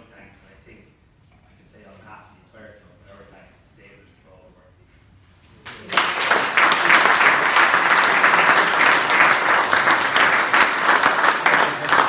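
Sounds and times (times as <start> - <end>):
audience applause: 5.7 - 12.0.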